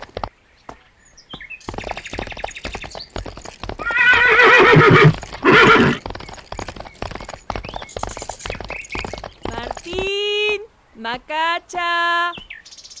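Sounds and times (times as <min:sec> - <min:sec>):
horse hooves clip-clopping: 0:00.0 - 0:10.8
horse whinny: 0:03.8 - 0:06.1.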